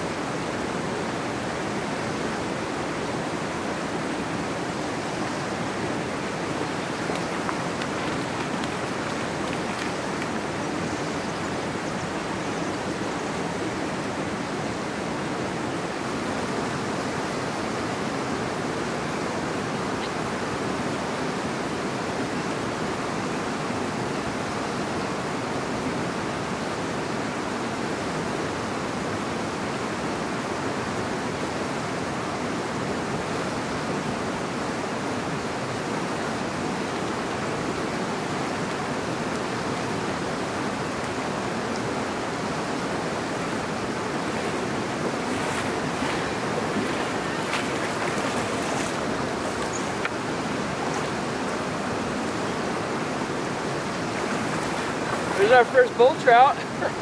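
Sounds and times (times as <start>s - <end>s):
river water rushing: 0.0s - 57.0s.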